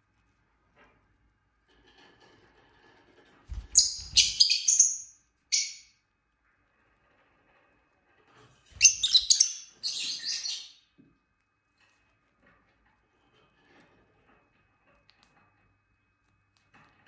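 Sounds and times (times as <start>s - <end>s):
lovebirds chirping: 3.7s - 5.9s, 8.8s - 10.8s.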